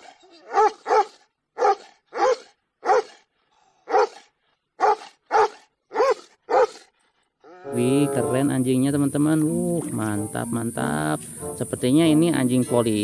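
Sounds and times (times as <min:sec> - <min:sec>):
dog barking: 0:00.0 - 0:06.9.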